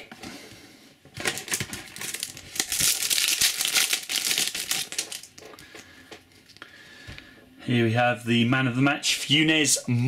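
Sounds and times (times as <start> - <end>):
foil wrapper crinkling: 1.2 - 5.8.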